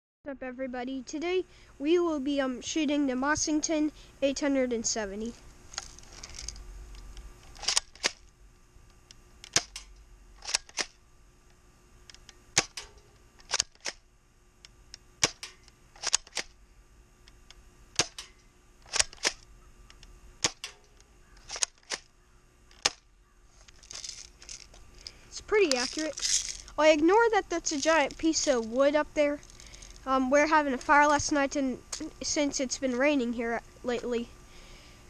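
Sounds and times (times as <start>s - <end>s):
airsoft gun shot snaps: 9.5s - 9.9s, 12.6s - 12.9s, 15.2s - 16.5s, 18.0s - 18.3s, 20.4s - 20.8s
shotgun pump racking clacks: 15.2s - 16.5s, 21.4s - 22.1s.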